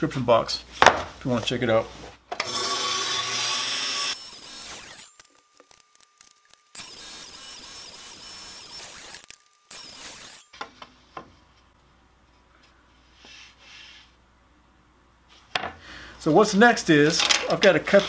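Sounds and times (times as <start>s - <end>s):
table saw cutting wood: 2.4s - 5.4s, 6.7s - 10.6s.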